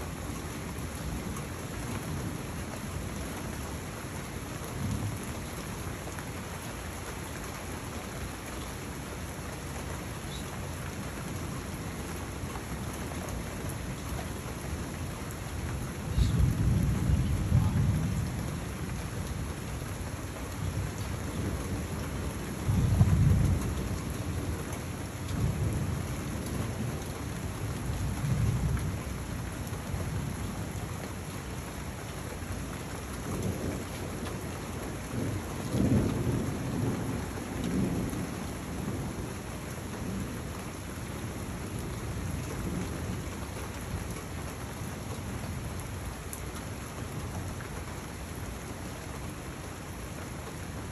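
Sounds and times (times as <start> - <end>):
steady rain falling: 0.0 - 50.9
low thunder rumbles: 15.7 - 19.6, 20.5 - 30.8, 33.3 - 40.5.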